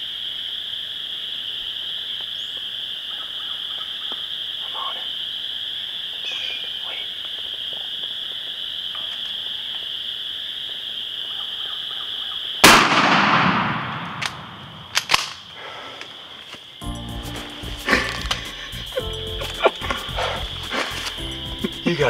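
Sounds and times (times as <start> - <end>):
shotgun blast echoing: 12.6 - 15.4
sharp clicks: 14.0 - 15.4
high-pitched chorus: 16.8 - 22.0.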